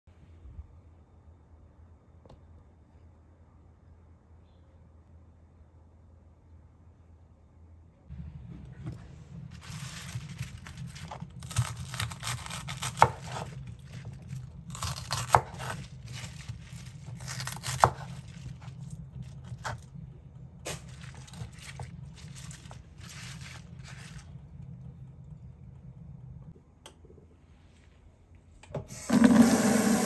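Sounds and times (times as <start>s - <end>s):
low steady hum: 0.1s - 29.1s
knife slicing leafy vegetables: 9.6s - 19.9s.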